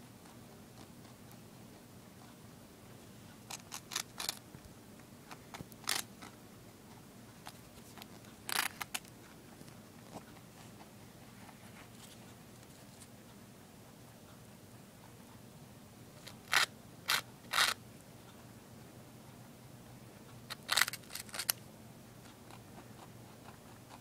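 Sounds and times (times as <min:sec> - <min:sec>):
rabbit crunching toast: 0:03.4 - 0:04.6, 0:05.2 - 0:13.1, 0:16.2 - 0:17.8, 0:20.5 - 0:21.6, 0:22.2 - 0:24.0.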